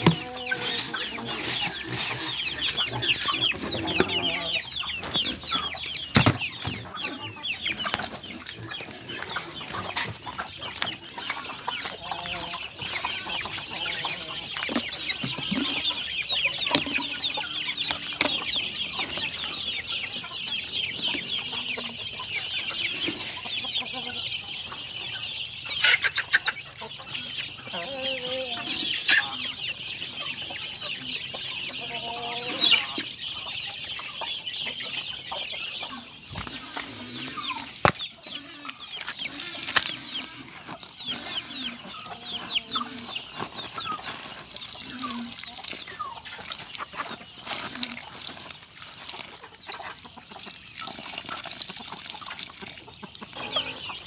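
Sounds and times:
hens clucking: 0.0 - 54.0.

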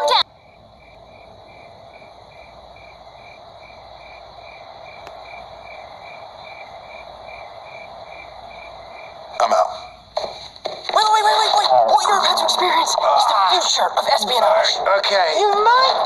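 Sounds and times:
crickets chirping: 0.0 - 16.0
low hiss: 0.3 - 10.6.

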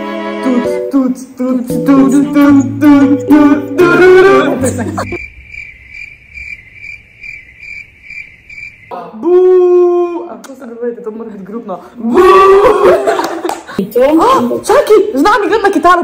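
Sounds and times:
song with singing over bass: 0.4 - 5.2
crickets chirping: 4.8 - 8.9.

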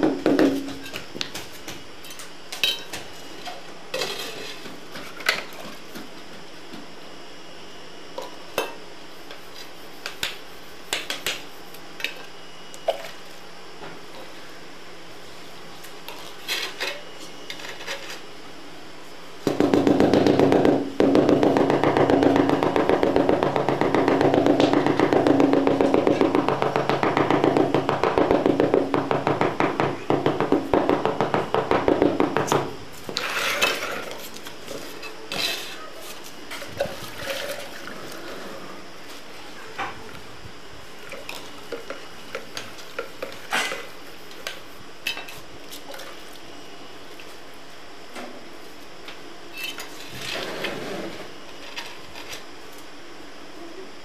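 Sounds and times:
tile scraping: 33.1 - 39.2, 49.6 - 52.4.

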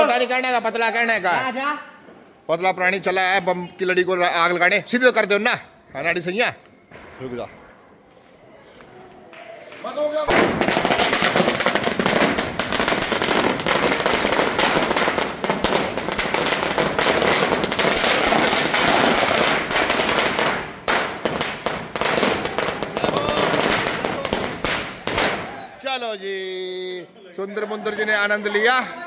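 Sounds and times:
firecrackers cracking: 9.7 - 25.7.

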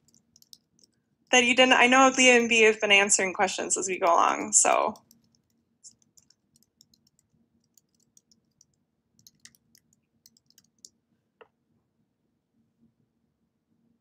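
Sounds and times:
computer keyboard clicking: 0.0 - 1.0, 3.9 - 11.0.

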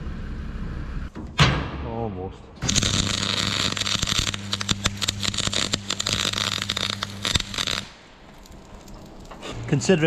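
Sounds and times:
low hum: 0.0 - 1.2
welding arc crackling and popping: 2.6 - 9.4.

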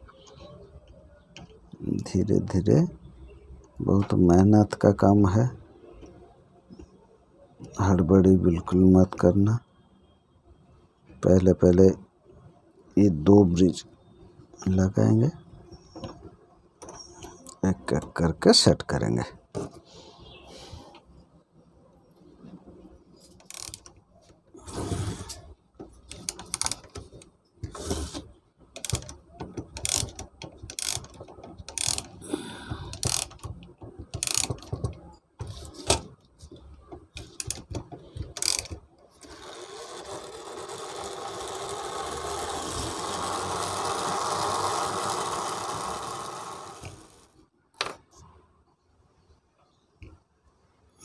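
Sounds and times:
gear train whirring: 23.3 - 23.9, 26.0 - 36.0, 37.0 - 47.4.

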